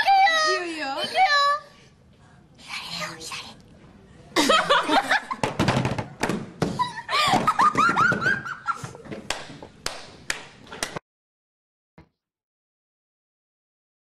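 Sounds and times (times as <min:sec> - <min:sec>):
girls laughing in squeals: 0:06.7 - 0:08.9
hand claps: 0:09.2 - 0:11.0.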